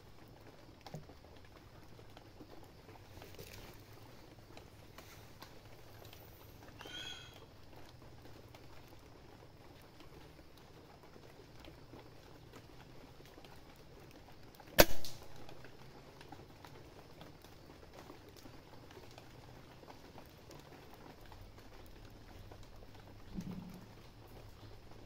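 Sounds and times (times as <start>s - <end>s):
air rifle shot: 14.8s - 15.2s.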